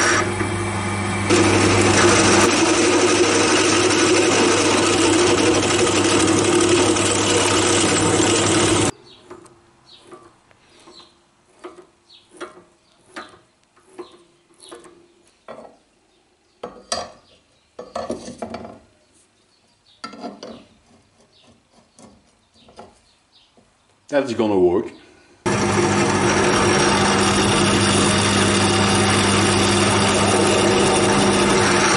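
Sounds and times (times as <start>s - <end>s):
drill press drilling steel: 0.0s - 0.5s, 1.2s - 8.9s, 25.5s - 31.9s.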